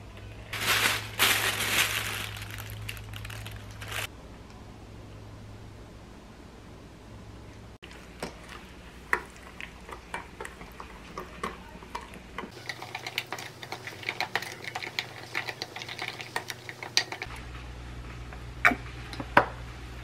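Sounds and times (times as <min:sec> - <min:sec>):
spoon stirring thick sauce: 0:07.8 - 0:17.3.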